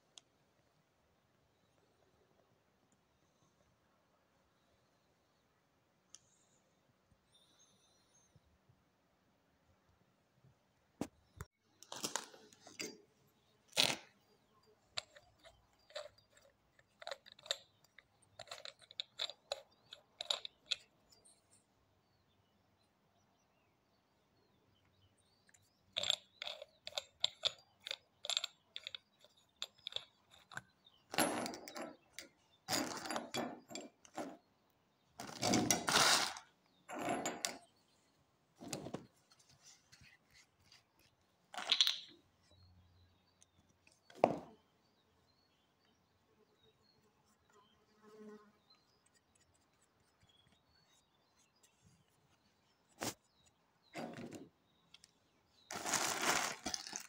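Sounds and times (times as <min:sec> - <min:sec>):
plumbing fittings being handled: 0:13.7 - 0:14.1, 0:14.9 - 0:21.3, 0:25.5 - 0:34.4, 0:38.6 - 0:42.2, 0:55.7 - 0:57.0
small clicks of fittings: 0:15.0 - 0:21.2.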